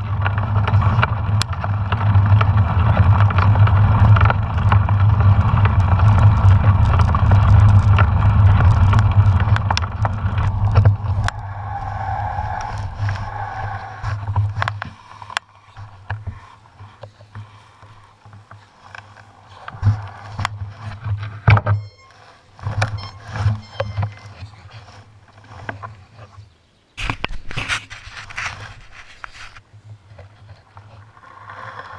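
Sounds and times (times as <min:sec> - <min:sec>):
wind buffeting microphone: 0:00.0 - 0:15.1
bike rolling rumble: 0:00.0 - 0:31.9
scattered clicks and knocks: 0:18.3 - 0:24.4.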